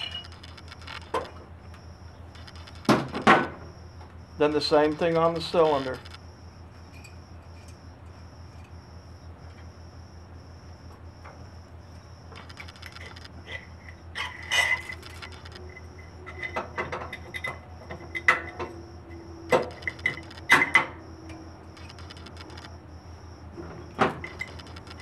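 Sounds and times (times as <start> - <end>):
steady low hum: 0.0 - 25.0
metal clinks taps and scrapes: 6.9 - 7.8, 12.4 - 22.0, 24.1 - 25.0
sharp metal knocks: 19.5 - 21.0.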